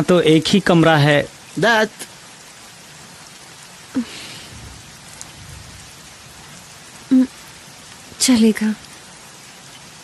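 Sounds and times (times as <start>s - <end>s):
heavy rain falling: 0.0s - 10.0s
low rumble of thunder: 4.0s - 9.1s.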